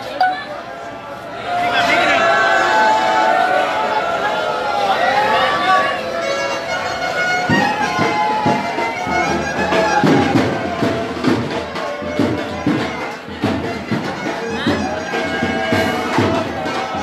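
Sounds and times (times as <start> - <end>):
wind instrument melody: 5.2 - 17.0
drumbeat: 6.9 - 17.0.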